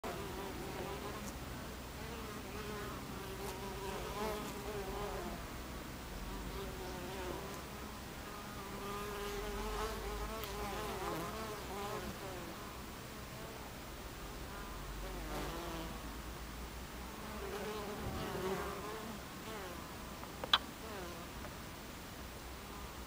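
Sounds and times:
honeybees buzzing: 0:00.0 - 0:13.7, 0:16.9 - 0:21.4
bee flying past: 0:06.2 - 0:12.8, 0:17.1 - 0:21.3.

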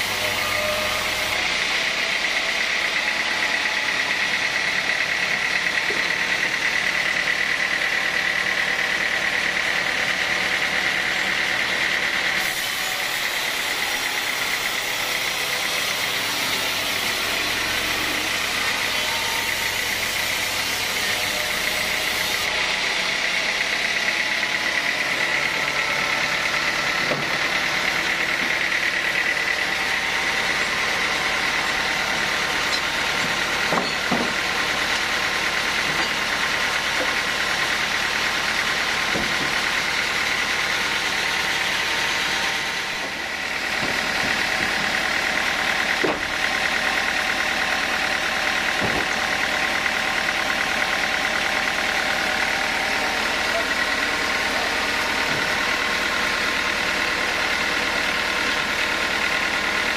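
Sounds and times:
sawmill machinery whining: 0:00.0 - 0:59.9
logs knocking: 0:33.2 - 0:34.4, 0:48.8 - 0:49.1.

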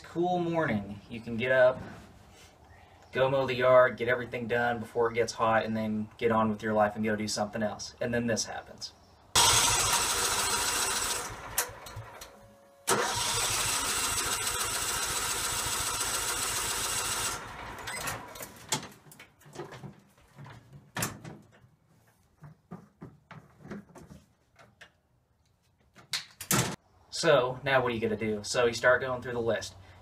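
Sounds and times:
engine cranking by starter: 0:09.4 - 0:18.6
knocks and clunks: 0:18.1 - 0:21.7.

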